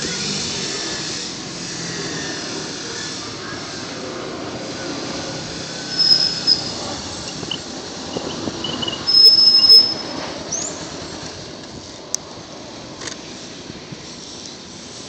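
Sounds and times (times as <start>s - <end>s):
high-pitched brake squeals: 5.7s - 10.8s.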